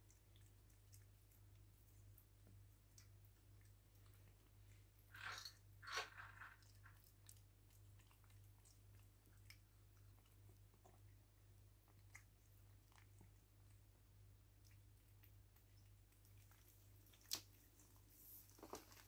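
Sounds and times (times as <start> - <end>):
cats crunching dry food: 0.1 - 19.0.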